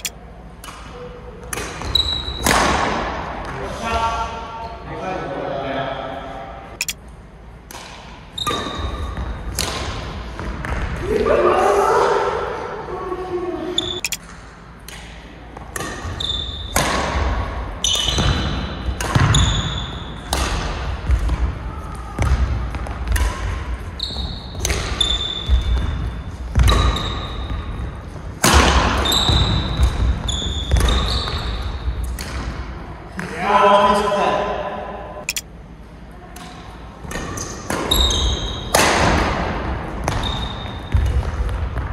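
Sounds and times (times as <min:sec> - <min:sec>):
rackets hitting shuttlecock: 0:00.0 - 0:03.2, 0:07.6 - 0:10.8, 0:14.0 - 0:21.5, 0:22.2 - 0:23.6
shoes squeaking on court: 0:13.8 - 0:14.2, 0:29.0 - 0:31.7, 0:40.1 - 0:41.2.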